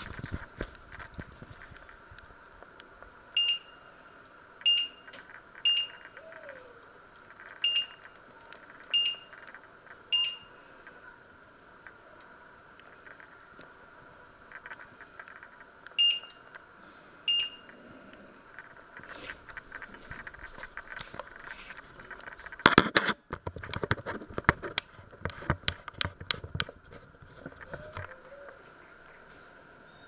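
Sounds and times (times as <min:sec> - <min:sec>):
electric hob touch control beeps: 0:03.4 - 0:03.8, 0:04.6 - 0:06.1, 0:07.6 - 0:08.1, 0:08.9 - 0:09.3, 0:10.1 - 0:10.6, 0:15.9 - 0:16.5, 0:17.3 - 0:17.8.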